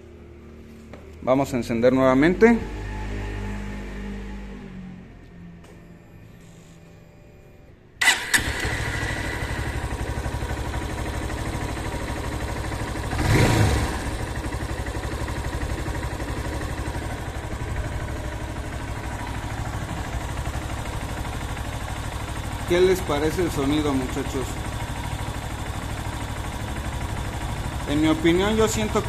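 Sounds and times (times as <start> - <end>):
motorcycle engine starting and idling: 8.0 - 29.0.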